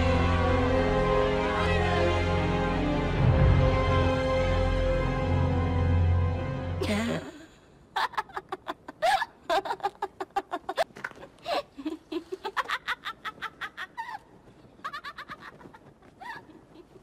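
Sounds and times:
girl laughing: 6.8s - 17.0s.

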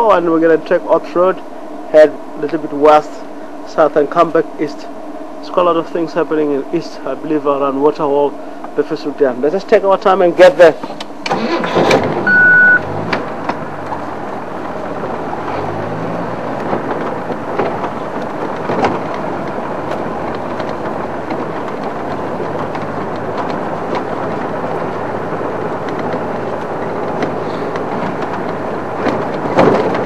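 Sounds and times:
knocks and rattles: 10.9s - 12.3s, 12.9s - 30.0s
vehicle engine accelerating: 10.9s - 30.0s
loud steady beep: 12.2s - 12.8s.

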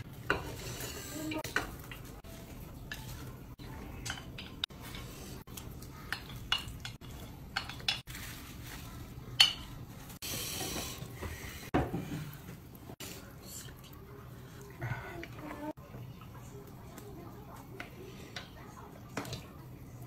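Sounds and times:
chopsticks clinking on plate and pot: 3.9s - 8.1s, 9.4s - 9.8s.

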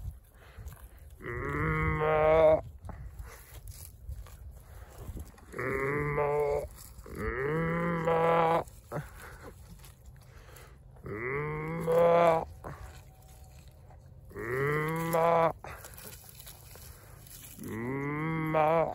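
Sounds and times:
cow mooing: 1.2s - 2.6s, 5.5s - 8.7s, 11.0s - 12.9s, 14.3s - 15.6s, 17.6s - 18.9s.

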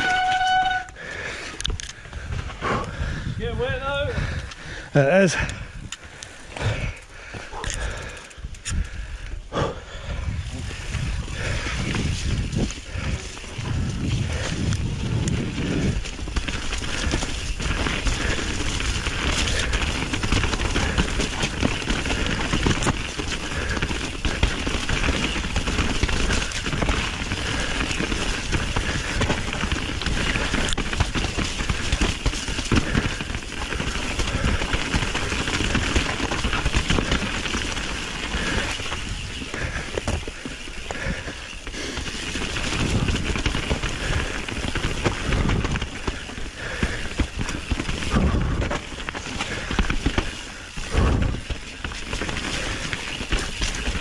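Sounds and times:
rushing noise with crackling: 0.0s - 54.0s
wind rumble on microphone: 1.6s - 4.8s, 8.0s - 32.0s, 42.4s - 51.6s.

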